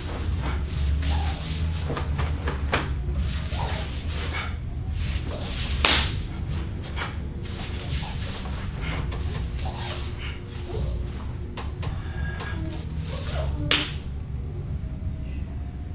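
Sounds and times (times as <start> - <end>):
uniform sleeves cracking: 0.0 - 14.1
steady low hum: 0.0 - 15.9
hands striking: 5.4 - 6.3, 13.7 - 14.0.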